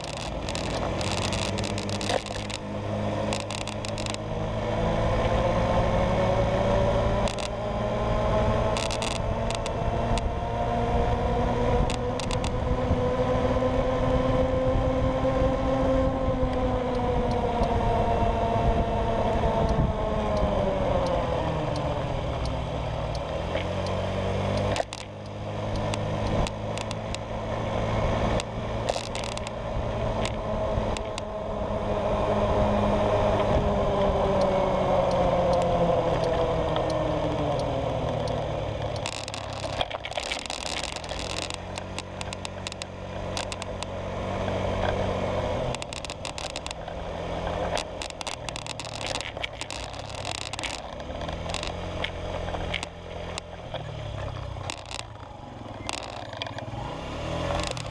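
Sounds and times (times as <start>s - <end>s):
short clicks and rattles: 0.0s - 2.6s, 3.3s - 4.2s, 7.2s - 7.6s, 8.7s - 10.3s, 11.8s - 12.6s, 23.5s - 27.3s, 28.3s - 29.6s, 30.2s - 31.3s, 38.1s - 43.9s, 45.7s - 56.7s, 57.4s - 57.9s
scooter engine running: 0.0s - 14.8s, 15.5s - 57.9s.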